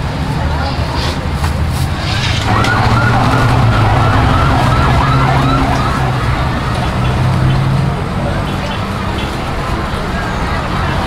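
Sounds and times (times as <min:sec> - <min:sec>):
wavering siren: 0:02.4 - 0:06.9.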